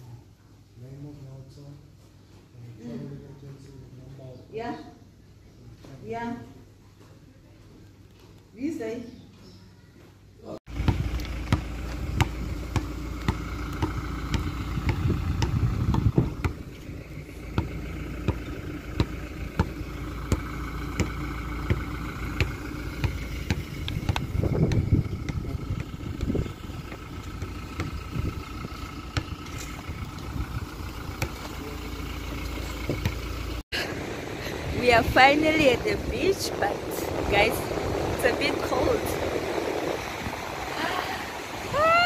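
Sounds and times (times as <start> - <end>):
car engine and road noise: 10.7 - 42.0.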